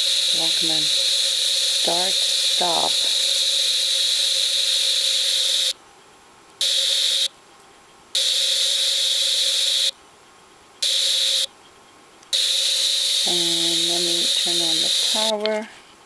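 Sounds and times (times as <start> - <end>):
radio static hiss: 0.0 - 5.8, 6.6 - 7.3, 10.8 - 11.5, 12.3 - 15.8.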